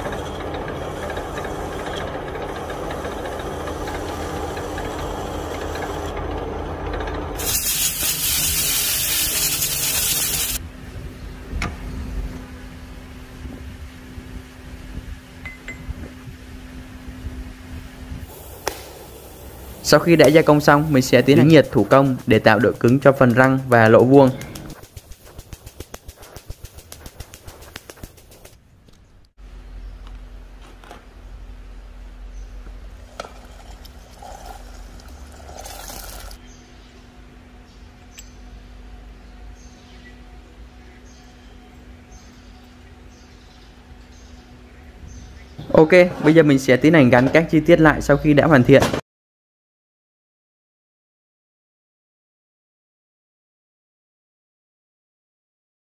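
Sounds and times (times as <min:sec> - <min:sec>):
workshop machinery humming: 0:00.0 - 0:48.2
hot steel sizzling in oil: 0:07.4 - 0:10.6, 0:18.3 - 0:28.6, 0:33.0 - 0:36.4
steel parts clicking: 0:07.4 - 0:10.6, 0:20.2 - 0:29.0.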